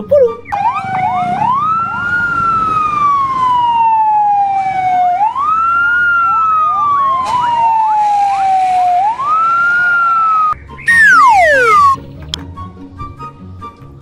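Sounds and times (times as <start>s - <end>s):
fire truck siren wailing: 0.5s - 9.7s, 10.9s - 12.0s
second siren with quick sweeps: 10.9s - 12.0s.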